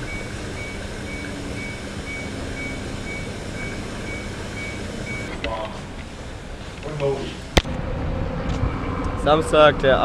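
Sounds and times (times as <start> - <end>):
washing machine rumble: 0.0 - 7.5.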